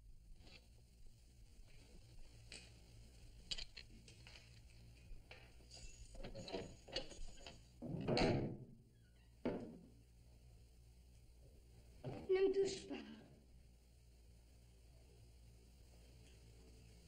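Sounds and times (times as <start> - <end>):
small clicks and knocks: 3.4 - 8.5.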